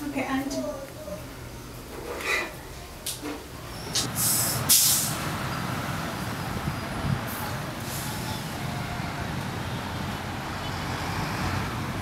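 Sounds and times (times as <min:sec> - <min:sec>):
low rumble of vehicle engines: 0:00.0 - 0:12.0
short loud hiss: 0:04.0 - 0:05.2.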